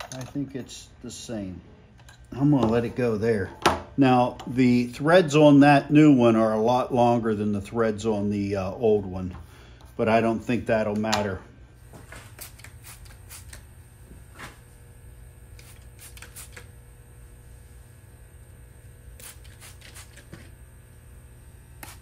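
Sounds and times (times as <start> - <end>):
spray bottle squirting: 12.2 - 13.6, 15.6 - 16.7, 19.2 - 20.5, 21.8 - 22.0.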